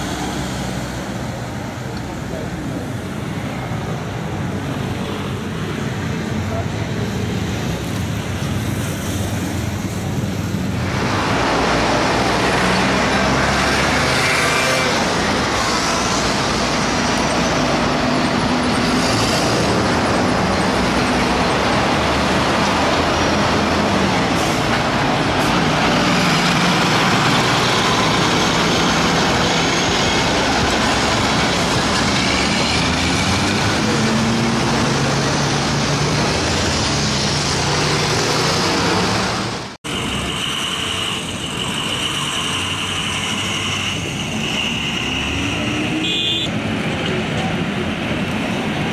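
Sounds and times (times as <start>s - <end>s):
city traffic noise: 0.0s - 48.9s.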